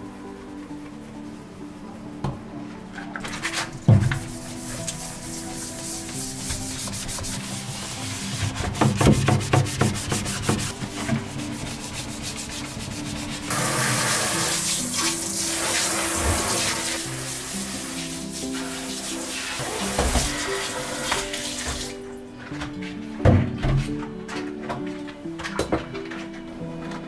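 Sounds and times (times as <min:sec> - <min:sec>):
soft background music: 0:00.0 - 0:27.0
brisk scrubbing strokes: 0:04.1 - 0:21.9
tap water running: 0:13.5 - 0:22.0.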